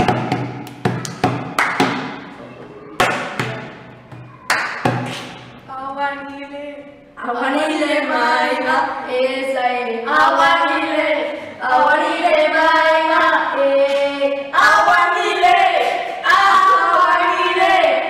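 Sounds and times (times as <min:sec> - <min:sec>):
girls singing unaccompanied: 0:05.7 - 0:18.0.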